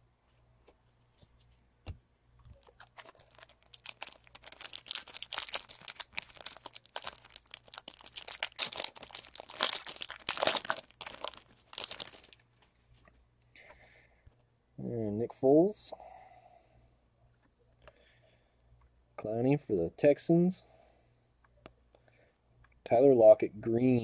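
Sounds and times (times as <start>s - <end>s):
foil wrapper tearing and crinkling: 2.6s - 12.4s.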